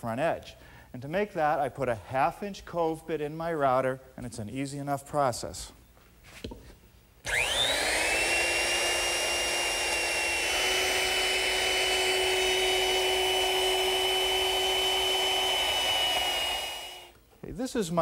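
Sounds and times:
electric router whining and cutting wood: 7.2s - 17.1s.

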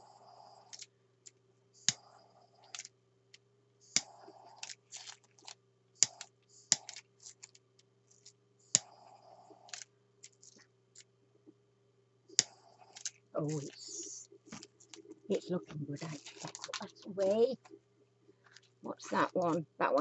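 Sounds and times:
sharp plastic clicks: 3.9s - 7.6s.

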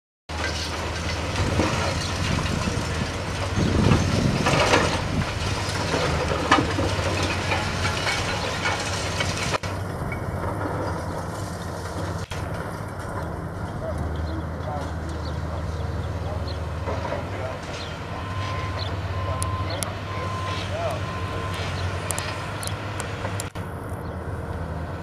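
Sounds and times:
debris clattering down: 0.3s - 13.5s
concrete cracking and crunching: 0.3s - 14.2s
diesel engine drone: 0.3s - 25.0s.

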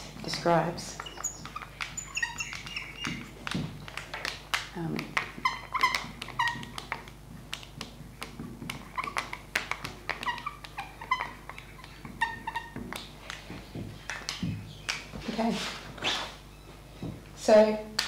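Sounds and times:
marker pen squeaking on glass: 0.8s - 3.6s, 5.4s - 6.8s, 8.8s - 9.4s, 10.1s - 12.8s.

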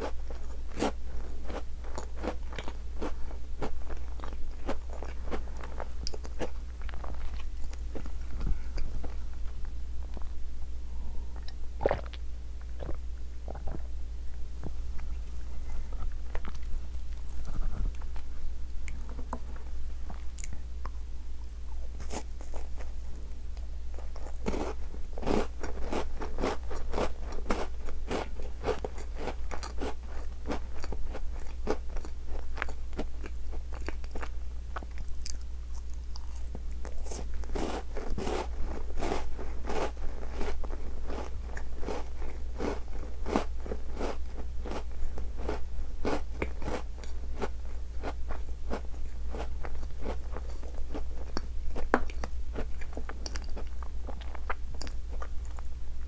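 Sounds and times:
steady low hum: 0.0s - 56.0s
biscuit crunching: 24.0s - 55.7s.

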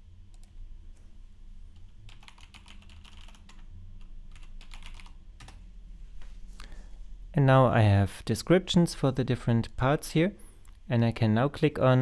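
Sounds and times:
faint low hum: 0.0s - 12.0s
computer keyboard typing: 2.1s - 5.6s.

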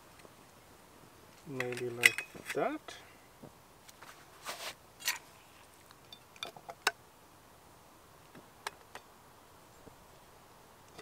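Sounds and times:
metal camp stove clinks: 1.5s - 2.6s.

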